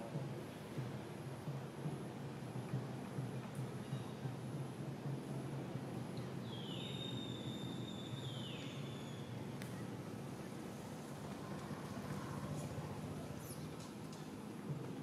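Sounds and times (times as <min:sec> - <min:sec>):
faint high-pitched whistling tone: 0:06.4 - 0:10.0.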